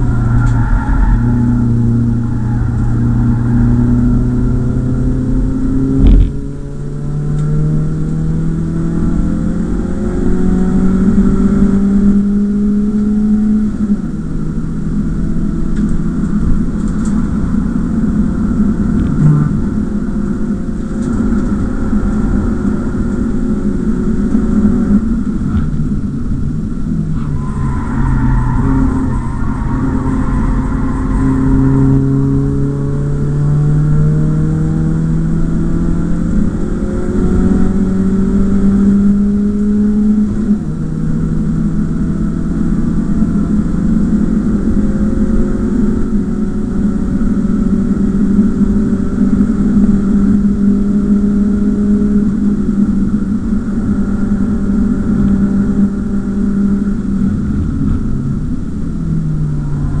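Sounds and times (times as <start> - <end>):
car engine under load: 0.0 - 60.0
steady rushing noise: 15.7 - 33.4.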